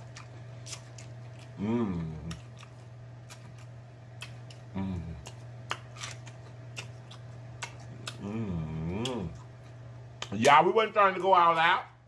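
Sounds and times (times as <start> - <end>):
person chewing food: 0.0 - 10.6
steady low hum: 0.0 - 12.0
person humming: 1.6 - 2.4, 4.7 - 5.4, 8.0 - 9.4
wet lip smacks and mouth clicks: 2.3 - 8.2.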